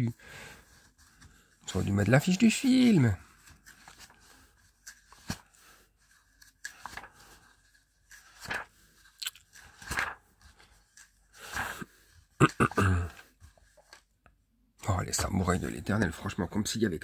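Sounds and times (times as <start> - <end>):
book pages turning: 0.6 - 12.4, 13.1 - 15.5.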